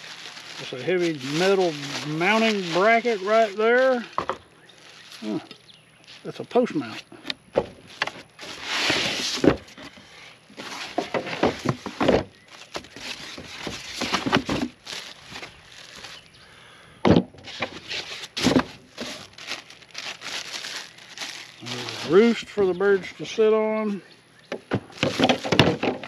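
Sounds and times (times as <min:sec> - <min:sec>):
plastic bag crinkling: 0:00.0 - 0:06.9, 0:07.8 - 0:16.5, 0:17.4 - 0:23.4, 0:24.9 - 0:26.0
knocks of handling: 0:10.6 - 0:16.1.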